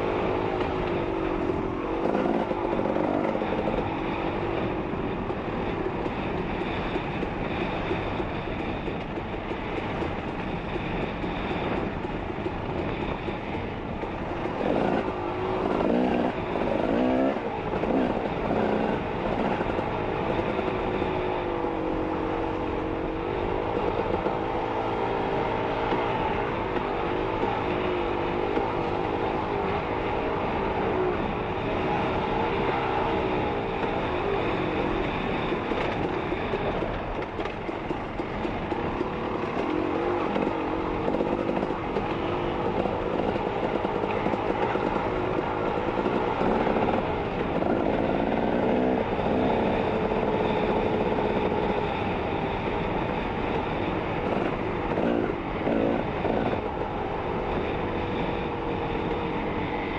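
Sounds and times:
steady rushing noise: 0.0 - 59.9
dirt bike engine revving: 14.6 - 19.7.

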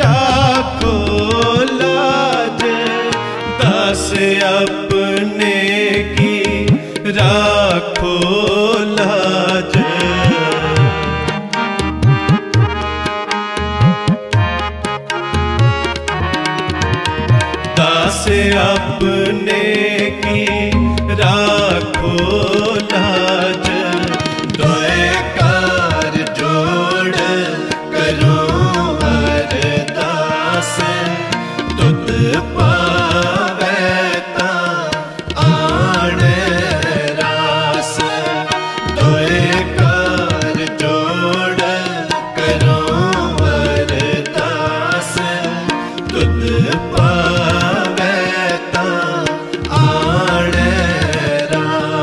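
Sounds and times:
man singing ornamented melody: 0.0 - 13.0, 17.1 - 52.0
tabla: 0.0 - 52.0
held accompanying tones: 9.4 - 34.1.

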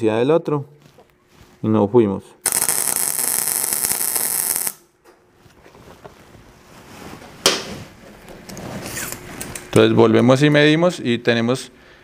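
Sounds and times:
welding arc burning: 2.4 - 4.8.

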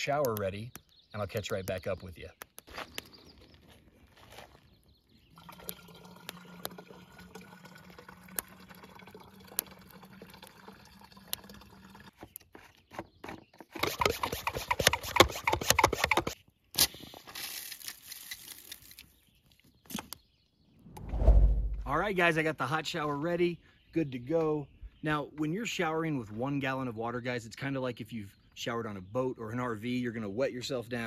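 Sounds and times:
water pouring from kettle: 5.4 - 12.2
hand pump clattering: 13.6 - 16.4.

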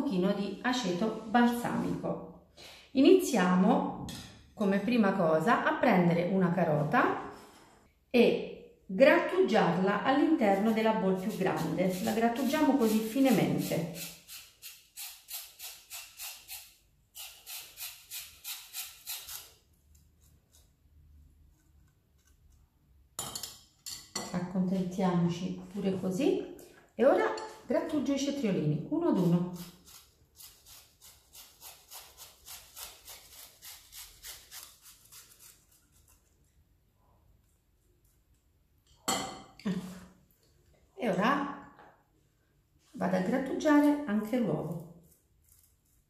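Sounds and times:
grater scraping strokes: 10.5 - 19.6, 29.1 - 36.4.

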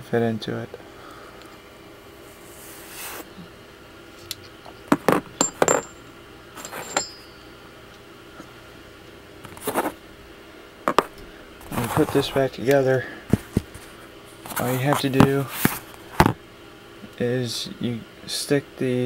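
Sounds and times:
small steel parts clinking: 5.1 - 7.5.

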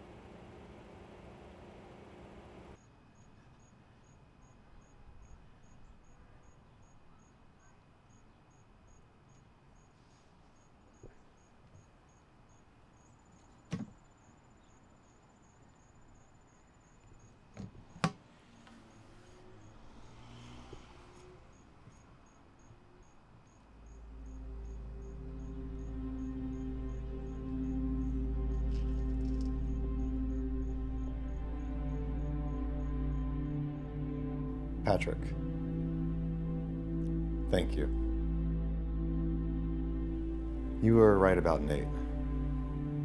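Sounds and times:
cricket chirping: 2.8 - 18.0, 18.7 - 34.8
low hum: 22.7 - 43.0.

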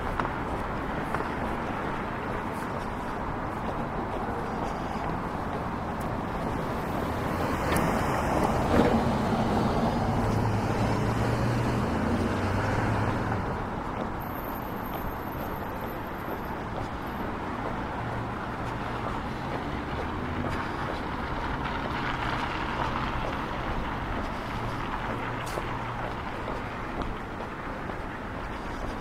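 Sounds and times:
street traffic: 0.0 - 29.0
vehicle passing close by: 6.4 - 13.7.

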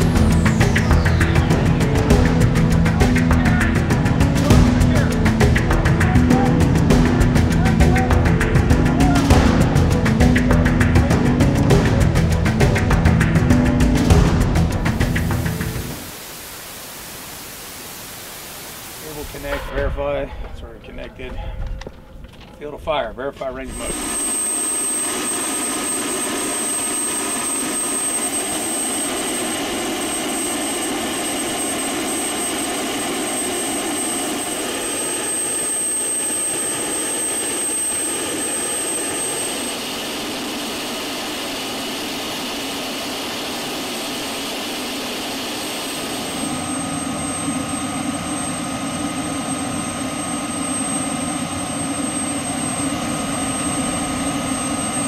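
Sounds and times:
high-pitched turbine whine: 0.0 - 22.0, 22.6 - 55.0
helicopter turbine roar: 0.0 - 55.0.

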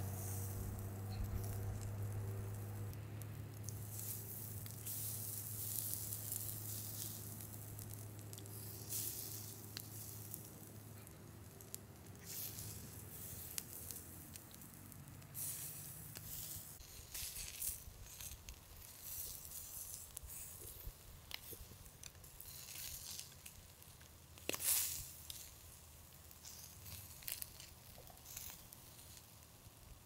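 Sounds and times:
low hum: 0.0 - 16.8
food sizzling in hot fat: 0.0 - 30.0.

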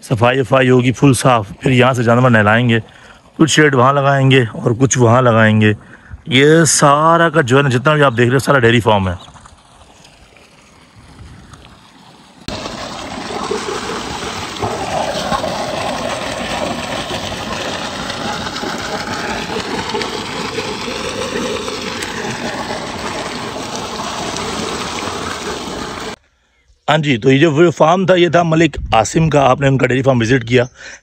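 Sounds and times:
water gushing from a pipe into a pool: 9.4 - 26.2.

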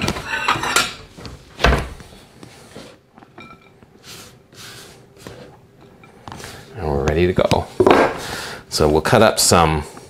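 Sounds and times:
dishes clattering: 0.0 - 1.1
soft brushing on a plate: 4.0 - 6.8.

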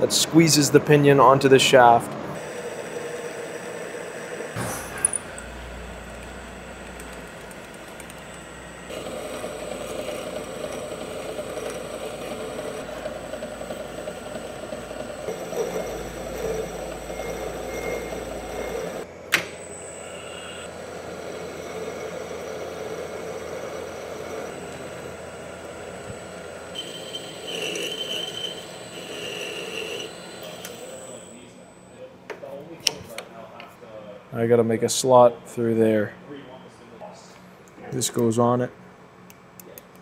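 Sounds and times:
metal lathe cutting: 2.4 - 31.6.

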